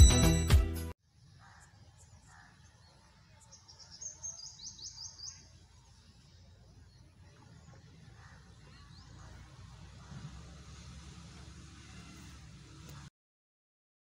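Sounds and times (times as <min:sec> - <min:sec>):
small bird chirping: 0:01.1 - 0:10.3
low outdoor rumble: 0:05.4 - 0:13.1.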